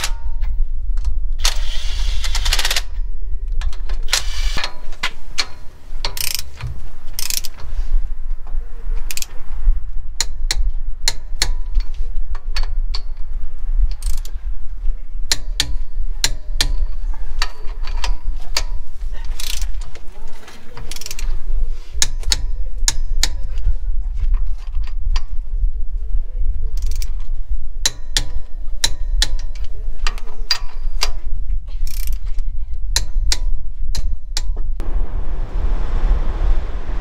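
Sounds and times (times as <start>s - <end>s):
steady low rumble: 0.0s - 1.6s, 2.4s - 28.8s, 34.7s - 37.0s
socket wrench ratcheting: 3.7s - 7.6s, 9.1s - 9.4s, 13.9s - 14.3s, 15.3s - 19.7s, 20.9s - 21.3s, 26.8s - 27.2s, 31.8s - 32.2s.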